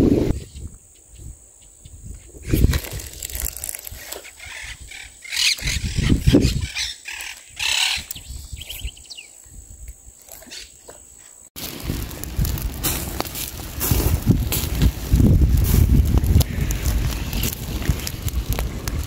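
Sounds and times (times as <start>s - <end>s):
rustling and bumps: 11.6s - 19.0s.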